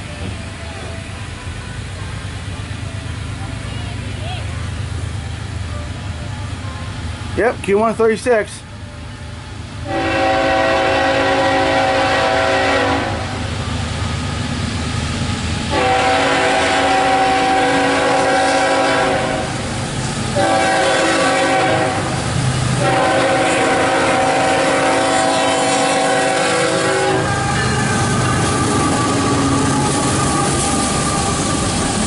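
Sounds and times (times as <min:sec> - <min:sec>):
low rumble of train: 0:00.0 - 0:32.0
locomotive horn blasts: 0:09.8 - 0:13.5, 0:15.7 - 0:19.6, 0:20.4 - 0:22.2, 0:22.8 - 0:29.4.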